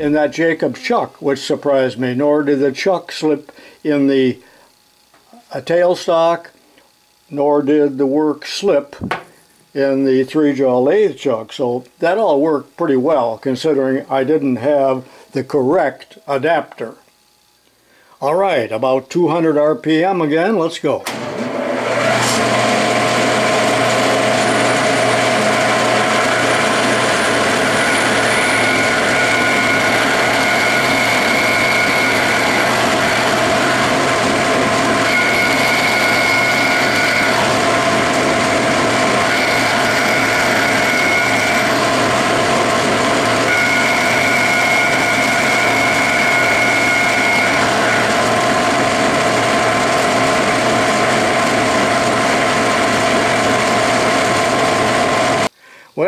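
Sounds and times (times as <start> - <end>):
metal lathe running: 21.1 - 55.5
cutter boring into brass: 21.8 - 55.5
high machine tone: 22.1 - 55.5.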